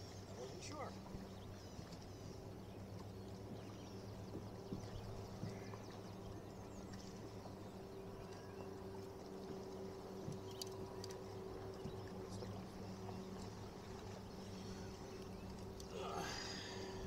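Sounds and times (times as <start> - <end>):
electric trolling motor hum: 0.1 - 17.0
light clicks: 10.3 - 11.3.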